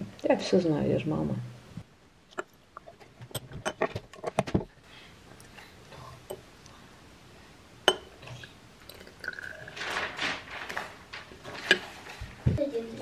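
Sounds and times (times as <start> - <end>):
glass vials clinking: 7.9 - 8.3.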